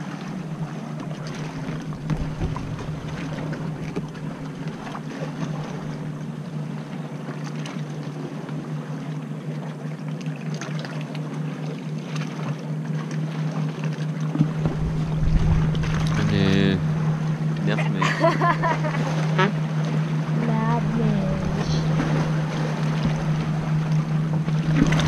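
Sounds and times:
oars dipping through water: 0.0 - 25.0
steady low hum: 0.0 - 25.0.

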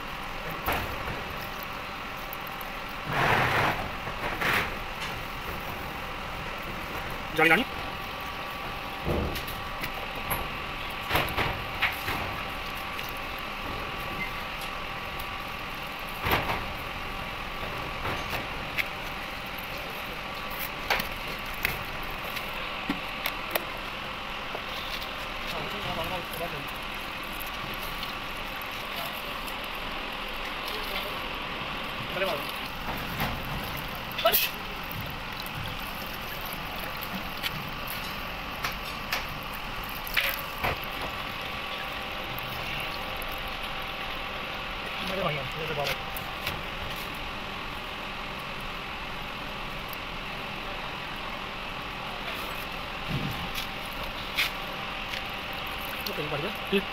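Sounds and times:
machinery humming: 0.0 - 56.9
steady hiss: 0.0 - 56.9
water splashing and dripping: 24.8 - 46.9, 55.1 - 56.9.

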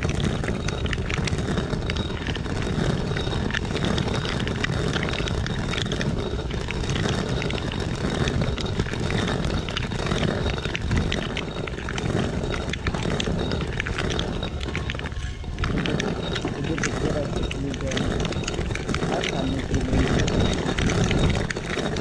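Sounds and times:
grains cracking: 0.0 - 22.0
stone quern rumbling: 0.0 - 22.0.

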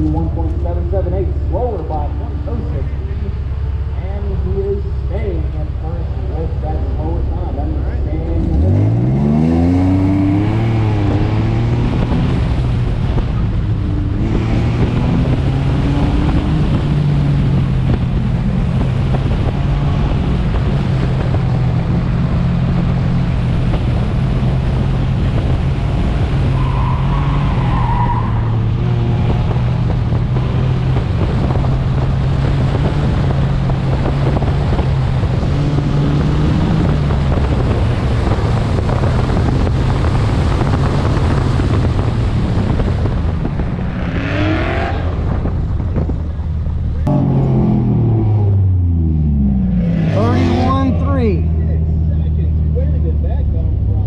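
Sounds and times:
car engine revving hard: 8.1 - 46.1, 47.0 - 54.0.

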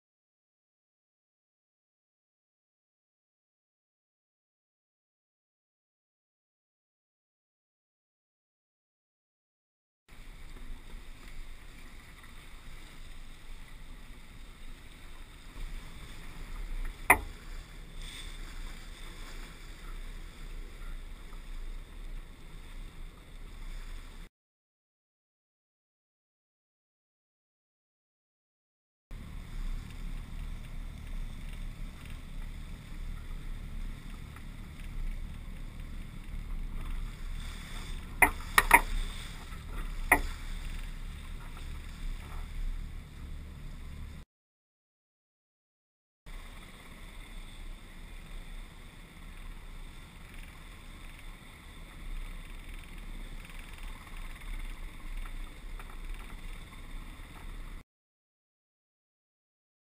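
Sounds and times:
water rushing along a hull: 10.1 - 24.3, 29.1 - 44.2, 46.3 - 57.8.

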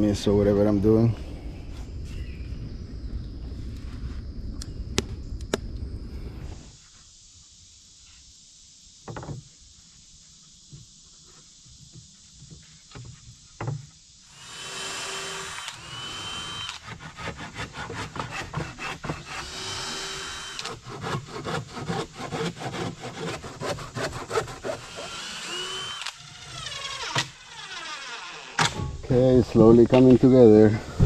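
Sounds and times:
sharp strokes on wood: 11.2 - 28.7
power drill driving screws: 14.3 - 16.9, 19.3 - 20.8, 24.8 - 28.7.

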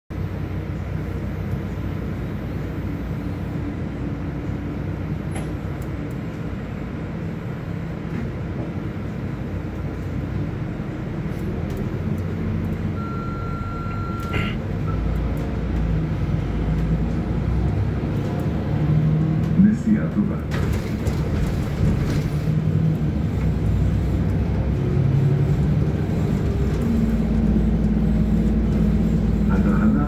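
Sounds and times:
bus engine humming: 0.1 - 30.0
steady high beep: 13.0 - 15.0.

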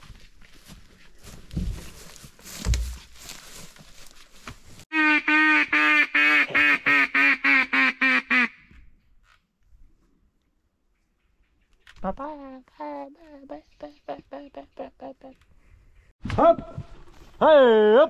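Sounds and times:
footsteps rustling through grass: 0.0 - 4.9
loud nasal duck quacks: 4.9 - 8.7.

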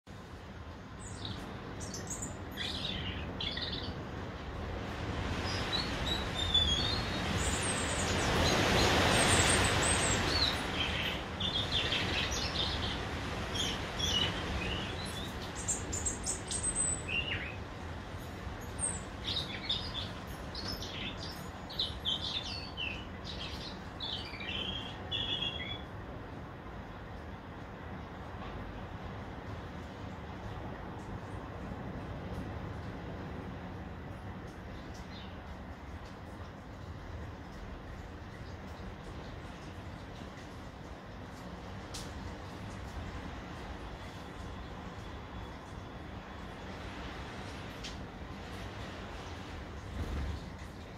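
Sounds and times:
broad rushing noise: 0.1 - 17.0
robin singing: 1.0 - 4.0, 5.4 - 17.6, 18.6 - 25.9.

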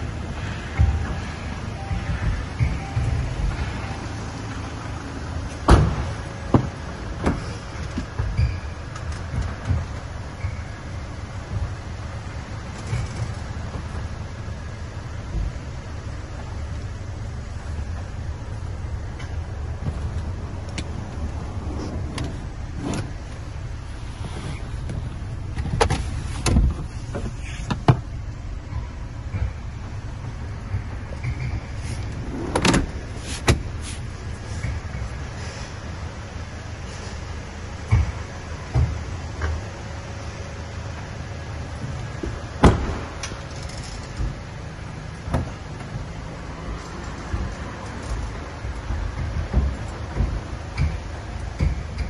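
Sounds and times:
low rumble: 0.0 - 39.4
sharp clicks and knocks: 5.5 - 16.8, 17.6 - 23.8, 24.6 - 35.4, 41.7 - 52.0
loud thump: 5.7 - 7.4, 42.6 - 43.2.

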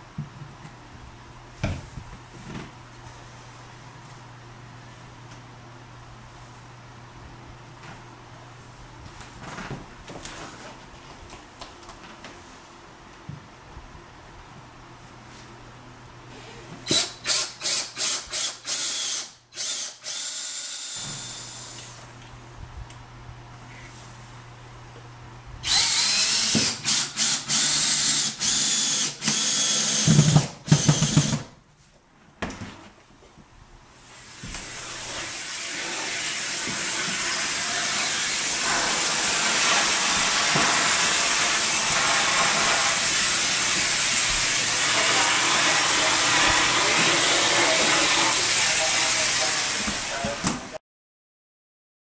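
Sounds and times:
cordless drill driving screws: 16.9 - 21.9, 25.6 - 31.4
vacuum cleaner running: 20.9 - 22.1, 34.0 - 50.7.

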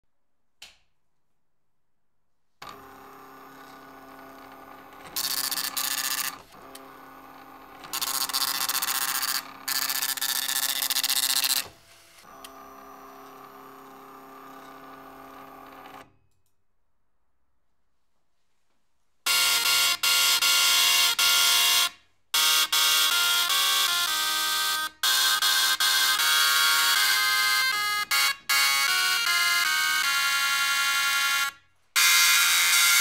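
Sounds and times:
click: 0.6 - 0.9, 16.3 - 16.6
dot matrix printer motor hum: 2.6 - 11.6.

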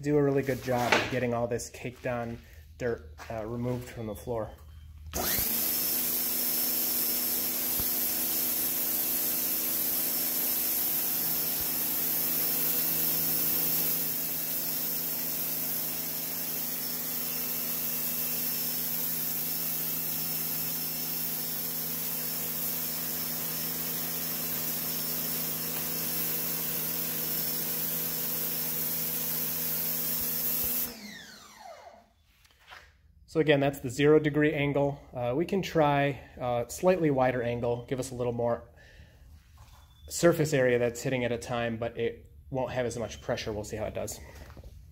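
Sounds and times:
pressure washer jet hissing: 5.2 - 30.9.

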